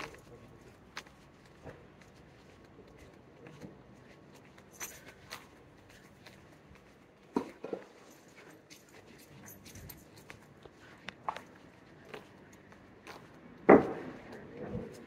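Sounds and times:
quiet city street ambience: 0.0s - 15.0s.

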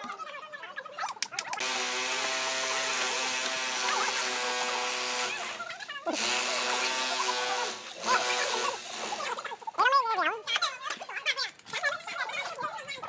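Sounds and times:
power tool whirring: 1.6s - 9.5s.

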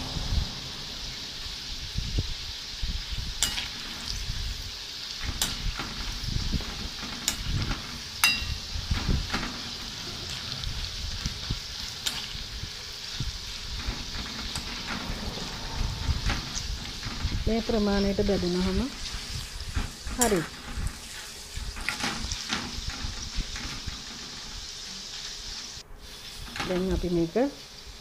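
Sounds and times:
food sizzling in hot oil: 0.0s - 28.0s
metal spoon scraping pan: 5.4s - 24.4s.

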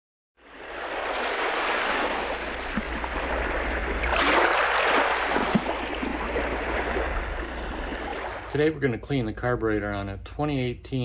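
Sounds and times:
waves rushing: 0.4s - 8.8s.

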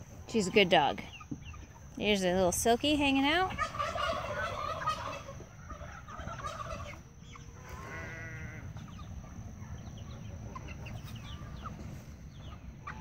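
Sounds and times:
chickens clucking and peeping: 0.0s - 13.0s
chicken drawn-out call: 3.5s - 9.1s.

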